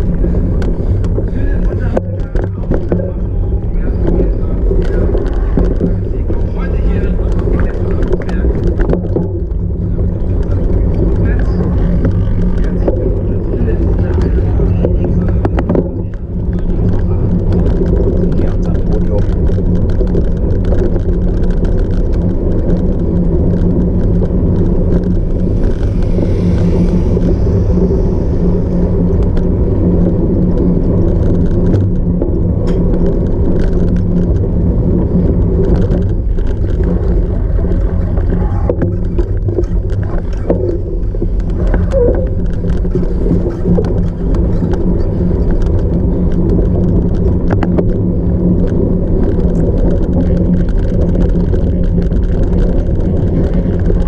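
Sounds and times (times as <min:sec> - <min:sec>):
bike riding rumble on rough ground: 0:00.0 - 0:54.0.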